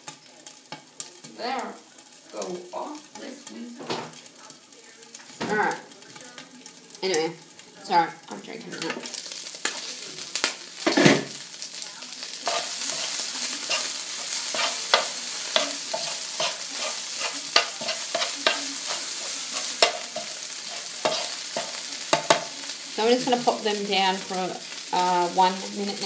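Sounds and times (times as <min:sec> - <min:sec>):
chicken sizzling in a pan: 0:00.0 - 0:26.0
metal tongs knocking pan: 0:12.5 - 0:22.6.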